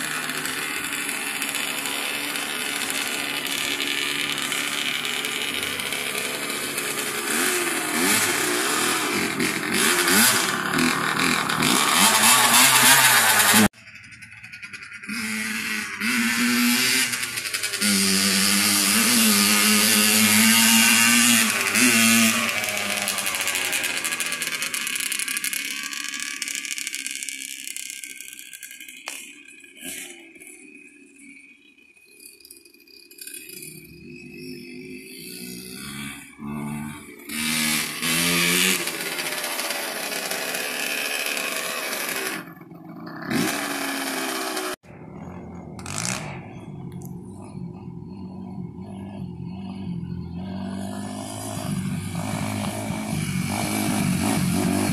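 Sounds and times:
dirt bike engine running: 0:00.0 - 0:30.7, 0:32.9 - 0:54.9.

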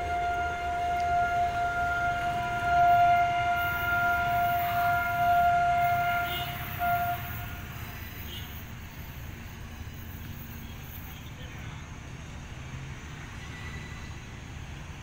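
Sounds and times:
locomotive air horn blast: 0:00.0 - 0:08.7.

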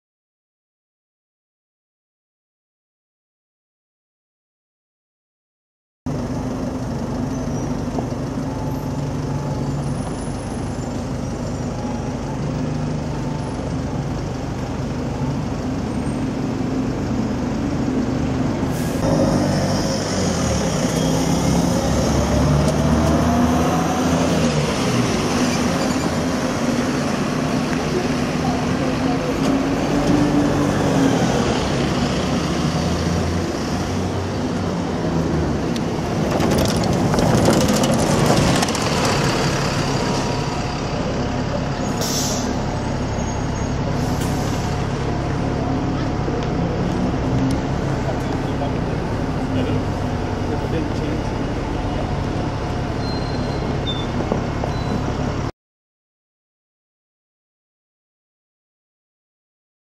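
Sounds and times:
bus engine accelerating: 0:06.1 - 0:55.5
air brakes hissing: 0:18.7 - 0:19.0, 0:41.9 - 0:42.6, 0:43.9 - 0:44.9.

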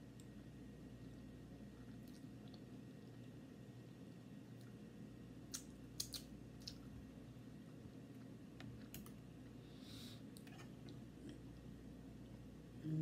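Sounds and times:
low room tone hum: 0:00.0 - 0:13.0
wet mouth clicks and smacks: 0:05.5 - 0:06.8.

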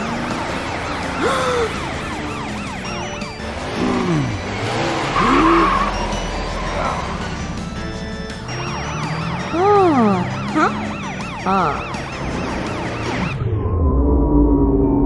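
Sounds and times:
background music: 0:00.0 - 0:13.9
siren wailing: 0:00.0 - 0:15.0
cartoon engine revs swooping: 0:03.5 - 0:06.8.

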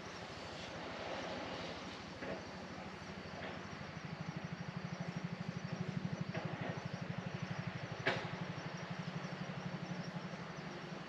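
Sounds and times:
low pulsing engine throb: 0:04.5 - 0:11.0.

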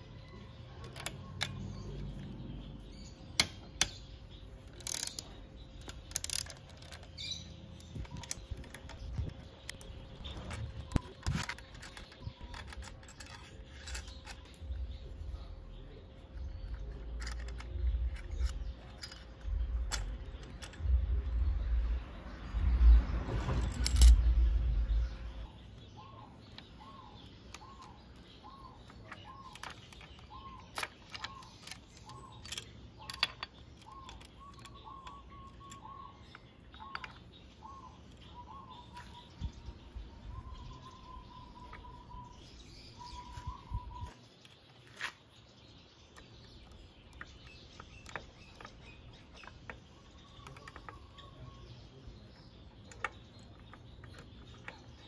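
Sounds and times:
metallic clicks of engine parts: 0:00.2 - 0:22.0, 0:23.4 - 0:39.4, 0:43.3 - 0:55.0
bird calling: 0:25.0 - 0:45.2.

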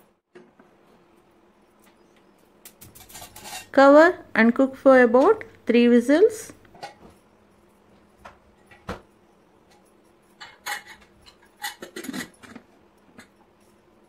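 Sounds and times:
lid clanking and scraping on pot: 0:03.0 - 0:03.8, 0:10.4 - 0:13.3
metal lid clinking: 0:10.4 - 0:13.4.

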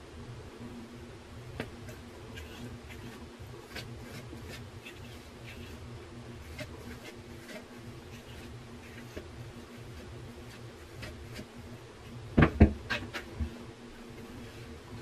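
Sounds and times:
steady low hum: 0:00.0 - 0:15.0
comb scratching through hair: 0:01.8 - 0:11.6.

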